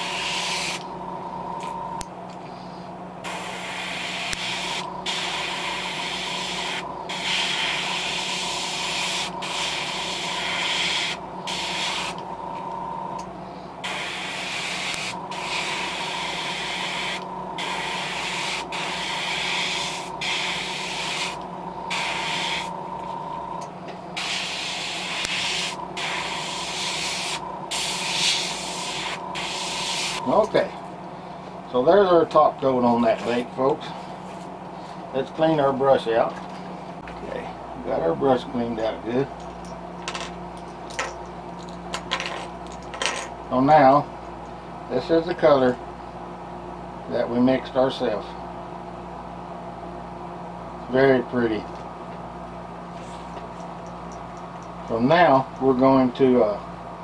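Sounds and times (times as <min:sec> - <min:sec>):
airbrush air hiss: 0:00.0 - 0:00.9, 0:03.2 - 0:12.2, 0:13.8 - 0:22.8, 0:24.2 - 0:30.4
steady low hum: 0:00.0 - 0:57.0.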